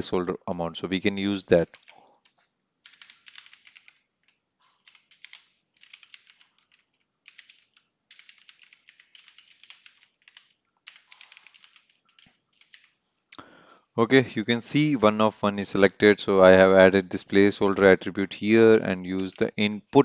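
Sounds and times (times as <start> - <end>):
faint typing on a keyboard: 1.0 - 13.5, 18.7 - 20.0.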